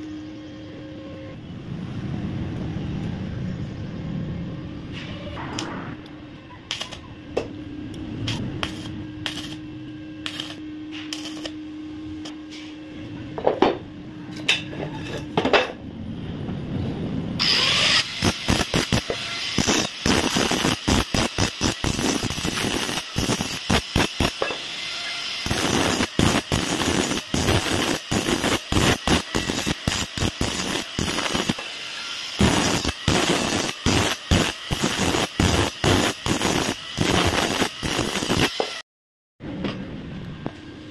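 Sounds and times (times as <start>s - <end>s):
low welding hum: 0.0s - 38.8s, 39.4s - 40.9s
angle grinder cutting steel: 8.3s - 11.6s, 17.4s - 38.8s.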